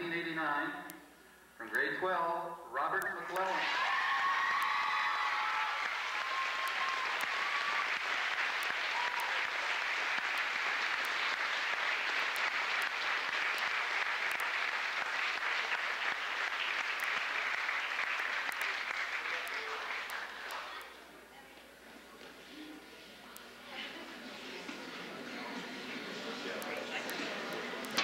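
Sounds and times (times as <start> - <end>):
audience applauding: 3.4 - 20.8.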